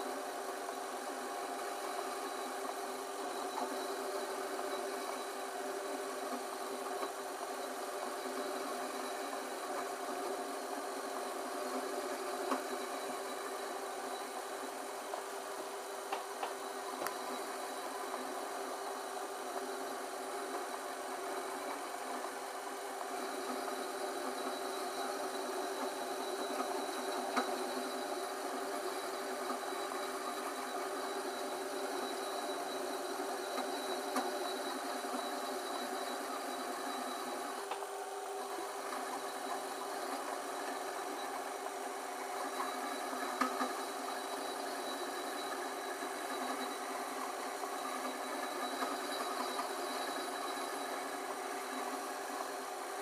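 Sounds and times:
lathe motor hum: 0:00.0 - 0:53.0.

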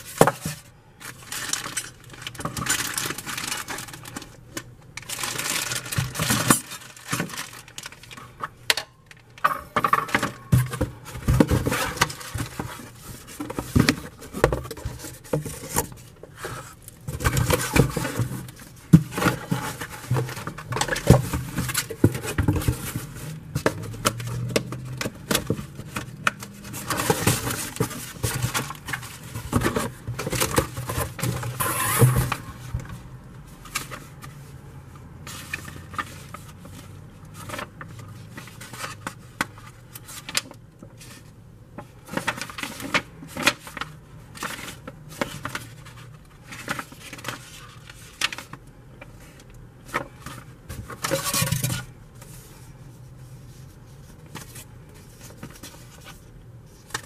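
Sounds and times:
plastic wrapping crinkling: 0:01.0 - 0:09.4
paper sheets rustling: 0:05.0 - 0:08.6, 0:09.8 - 0:57.0.

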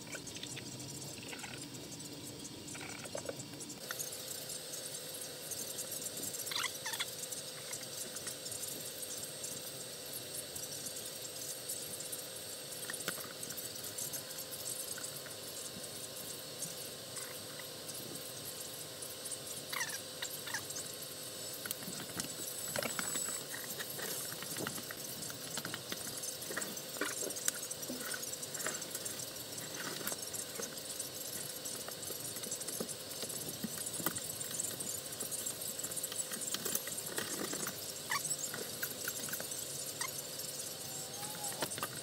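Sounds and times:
steady hiss: 0:00.0 - 0:42.0.

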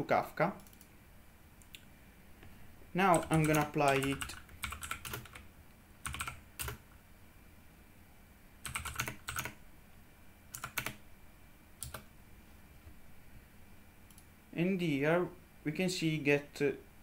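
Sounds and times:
computer keyboard typing: 0:00.6 - 0:00.9, 0:03.0 - 0:06.8, 0:08.6 - 0:09.6, 0:10.5 - 0:11.0, 0:11.8 - 0:12.1.

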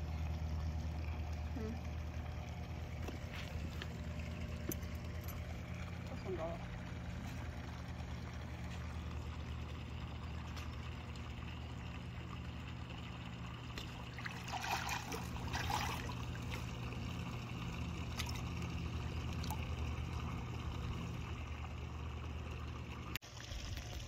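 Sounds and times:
fish splashing at water surface: 0:13.6 - 0:17.0, 0:18.0 - 0:20.5.

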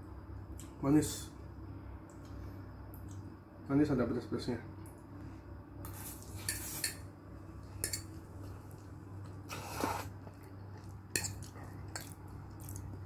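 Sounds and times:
fork clinking and scraping on plate: 0:06.4 - 0:07.1
chewing: 0:08.7 - 0:13.0
slurping noodles: 0:09.4 - 0:10.4.

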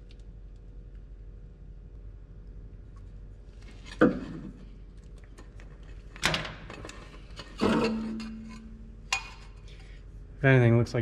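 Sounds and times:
metal exhaust parts clanking: 0:06.7 - 0:09.6.

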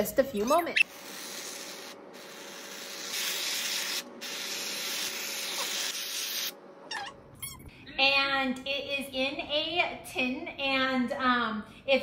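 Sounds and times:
aerosol cream can hissing: 0:00.9 - 0:06.5.

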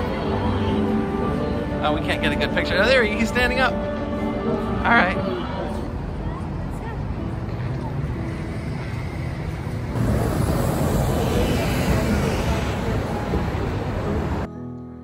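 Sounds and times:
passing cars: 0:05.8 - 0:14.5.

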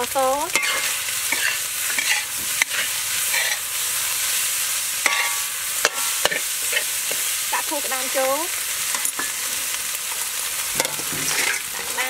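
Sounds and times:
frying sizzle: 0:00.0 - 0:12.0
ladle clanking on wok: 0:00.5 - 0:03.6, 0:05.0 - 0:07.3, 0:08.9 - 0:09.5, 0:10.7 - 0:12.0
ladle scraping in wok: 0:00.5 - 0:07.6, 0:08.5 - 0:12.0.

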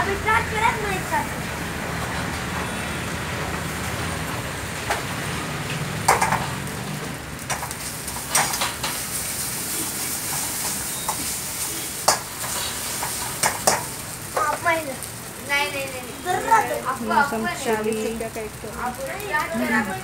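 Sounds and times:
noodles sizzling in a wok: 0:00.1 - 0:20.0
metal spatula clanking on wok: 0:12.0 - 0:13.9.

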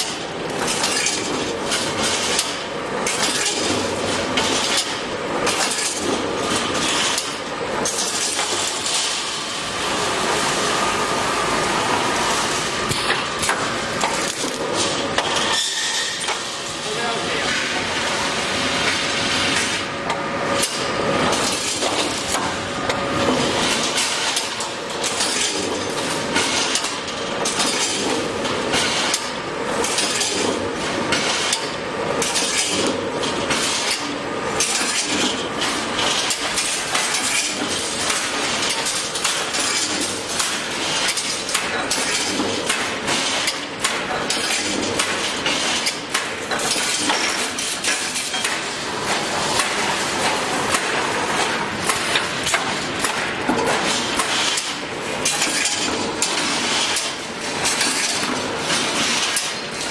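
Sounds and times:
welding machine running: 0:00.0 - 0:59.9
metallic clanking and clinking: 0:29.8 - 0:59.9.

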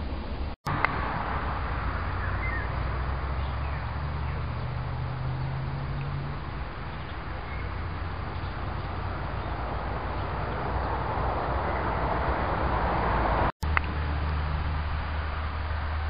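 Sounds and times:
low engine hum: 0:00.0 - 0:16.0
faint bird chirps: 0:02.1 - 0:05.5, 0:06.9 - 0:11.0.

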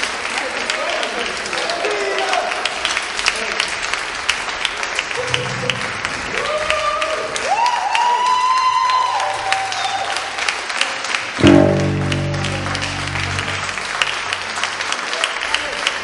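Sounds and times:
audience applauding: 0:00.0 - 0:16.0
electric guitar bending note: 0:05.2 - 0:06.3, 0:11.4 - 0:14.5
loud low chord ringing: 0:05.2 - 0:06.4, 0:11.4 - 0:14.8.

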